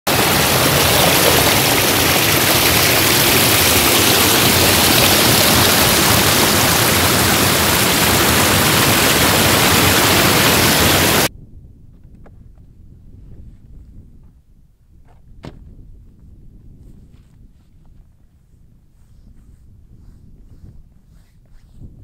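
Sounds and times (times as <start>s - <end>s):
waterfall rushing over rocks: 0.1s - 11.3s.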